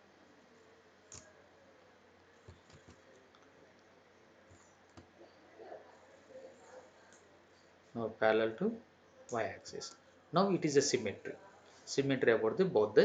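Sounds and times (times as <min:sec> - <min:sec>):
computer mouse clicks: 0:01.1 - 0:01.3, 0:02.4 - 0:03.5, 0:04.5 - 0:05.1.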